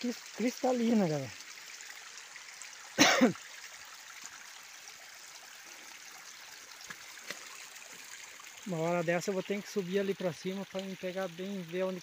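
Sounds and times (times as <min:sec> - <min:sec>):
water trickling: 0:00.0 - 0:12.0
man clearing throat: 0:03.0 - 0:03.4.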